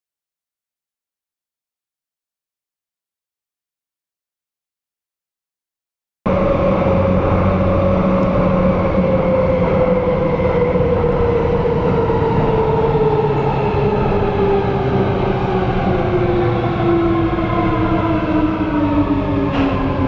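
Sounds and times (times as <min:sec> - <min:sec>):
train rolling on rails: 0:06.3 - 0:20.0.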